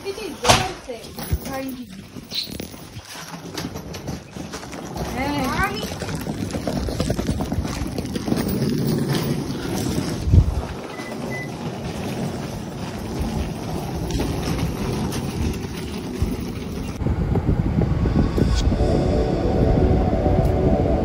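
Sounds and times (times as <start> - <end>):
wheeled suitcases rumbling on concrete: 0.0 - 17.9
wind noise on microphone: 1.1 - 21.0.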